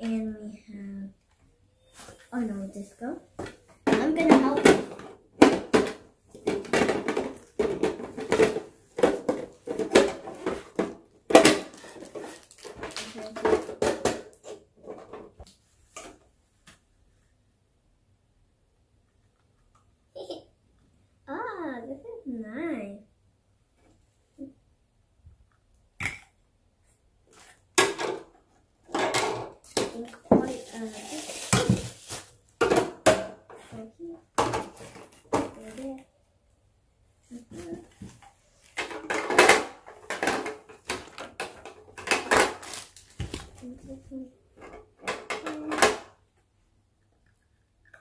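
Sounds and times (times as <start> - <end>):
plastic toy parts clattering: 3.9 - 15.4, 38.6 - 43.7.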